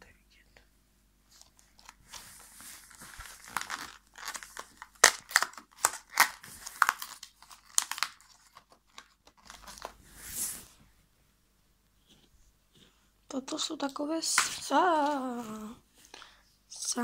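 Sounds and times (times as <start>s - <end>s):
plastic tray crinkling: 1.3s - 10.0s
cardboard tearing: 1.8s - 10.0s.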